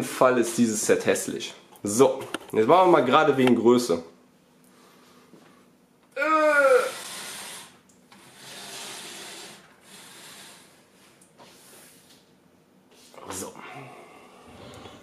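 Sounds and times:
man grunting with effort: 0:06.2 - 0:07.1
long hissing breaths: 0:06.6 - 0:12.1, 0:13.0 - 0:15.0.

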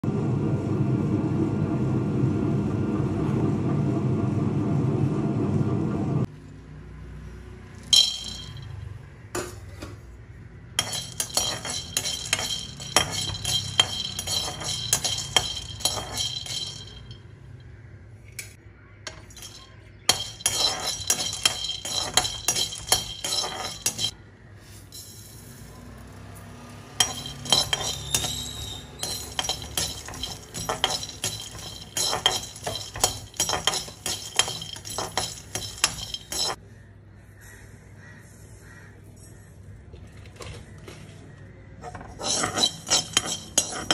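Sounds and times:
nuts rattling in a pan: 0:10.8 - 0:17.1, 0:19.1 - 0:24.1, 0:27.0 - 0:36.6, 0:42.1 - 0:43.9
metal spoon scraping a pan: 0:10.8 - 0:17.2, 0:19.1 - 0:24.2, 0:27.0 - 0:36.6, 0:41.8 - 0:43.9.

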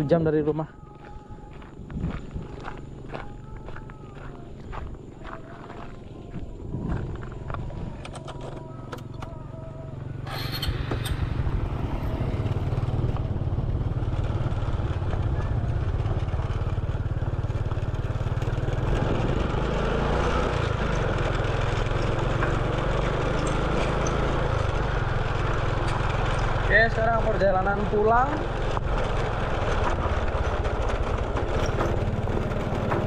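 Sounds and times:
motorcycle engine running: 0:00.0 - 0:33.0
wind noise on microphone: 0:01.2 - 0:03.6, 0:06.2 - 0:08.4, 0:18.6 - 0:19.6.

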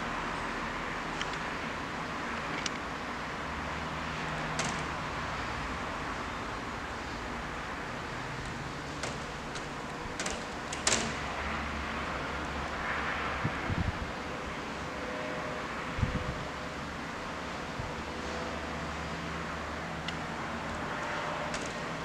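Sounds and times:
city background hum: 0:00.0 - 0:22.0.

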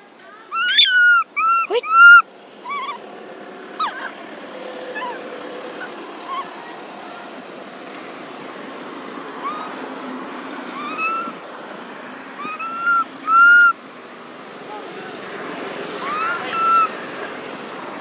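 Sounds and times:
baby monkey coo calls: 0:00.5 - 0:03.0, 0:05.8 - 0:06.6, 0:09.4 - 0:09.8, 0:10.7 - 0:11.4, 0:12.4 - 0:13.8, 0:16.0 - 0:17.0.

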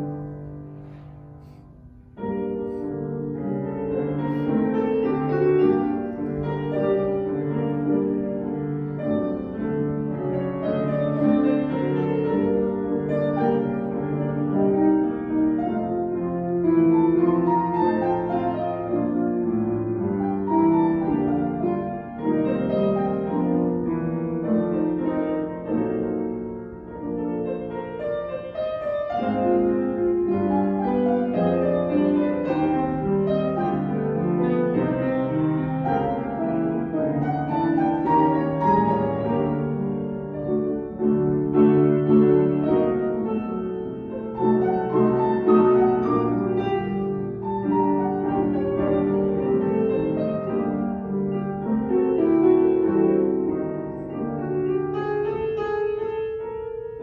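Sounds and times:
solo piano piece: 0:00.0 - 0:57.0.

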